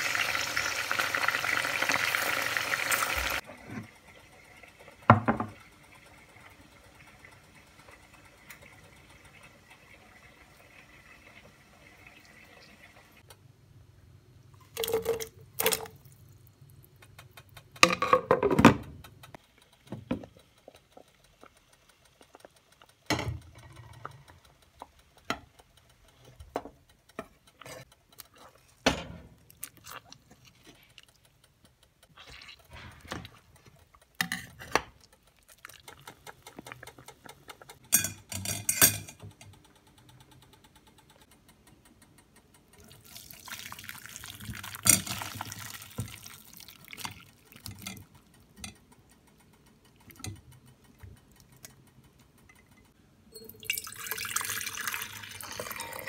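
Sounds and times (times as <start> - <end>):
utensils clinking against pots: 37.8 - 39.2.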